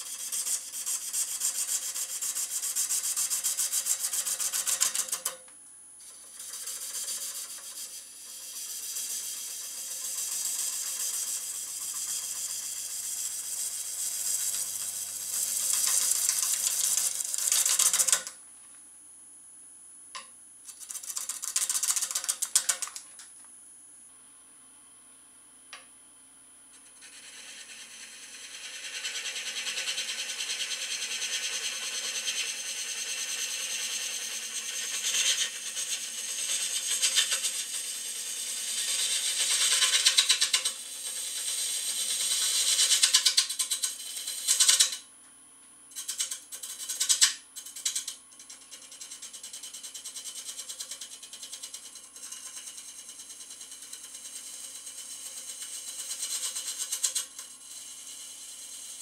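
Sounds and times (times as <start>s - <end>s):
lathe hum: 6.0s - 17.8s, 27.0s - 44.7s.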